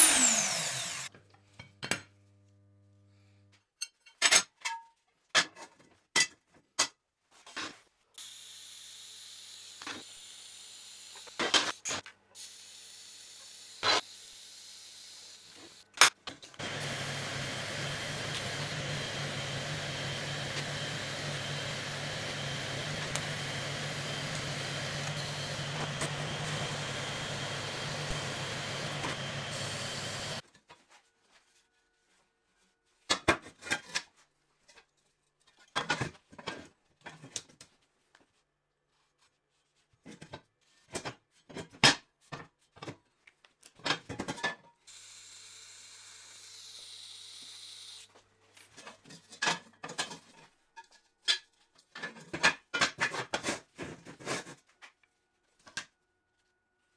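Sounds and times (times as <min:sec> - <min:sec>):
welding arc hissing: 0:16.6 - 0:30.4.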